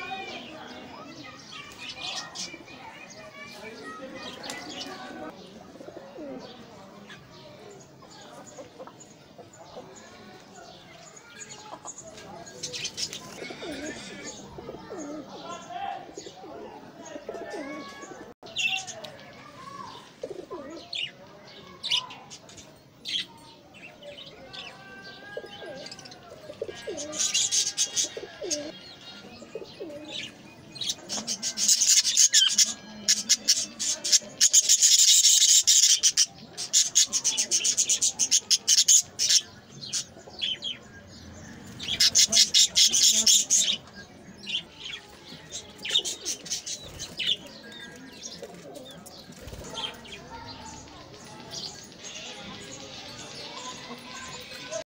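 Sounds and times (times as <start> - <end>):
pigeon coos: 13.3 - 15.4, 16.1 - 18.3, 20.2 - 20.9, 25.4 - 28.7, 29.4 - 30.2
budgerigars chattering: 30.9 - 40.8, 41.8 - 44.6.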